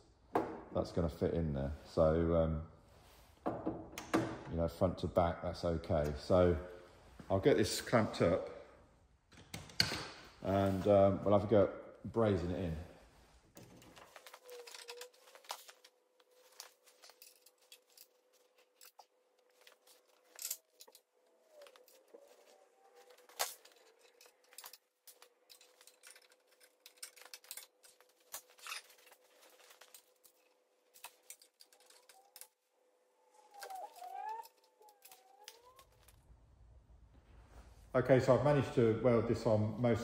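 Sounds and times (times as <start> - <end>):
metal parts clicking and tapping: 13.6 - 32.6
faint wavering squeaks: 19.5 - 24.7, 31.1 - 36.2.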